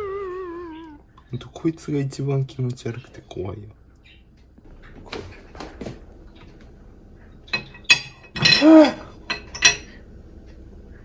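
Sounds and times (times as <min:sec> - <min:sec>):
ceramic dishes clinking: 0:07.4 - 0:10.0.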